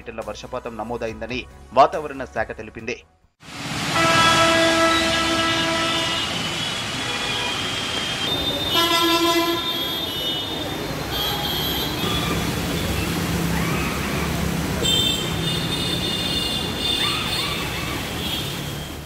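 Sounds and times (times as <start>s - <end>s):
engines and tyres through water: 3.4s - 19.0s
faint high horn tones: 3.9s - 12.9s
vehicle horns honking: 3.9s - 13.0s, 14.8s - 19.0s.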